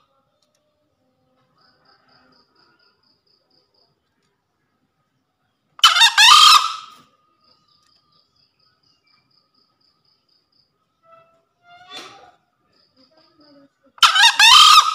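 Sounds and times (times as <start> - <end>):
junglefowl crowing: 5.8 - 7.0, 14.0 - 14.9.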